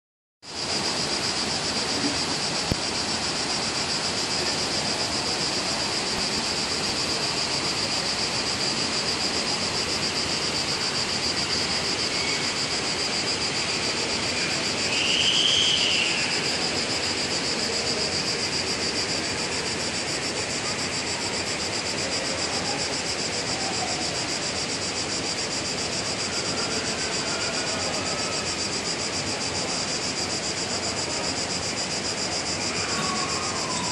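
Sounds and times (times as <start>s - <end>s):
flowing river water: 0.5s - 14.9s
insects chirring: 0.5s - 33.9s.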